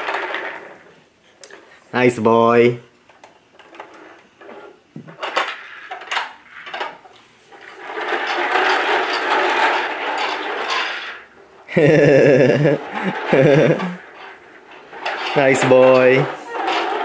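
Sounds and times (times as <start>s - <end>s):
plastic toy trucks knocking: 11.8s - 14.0s.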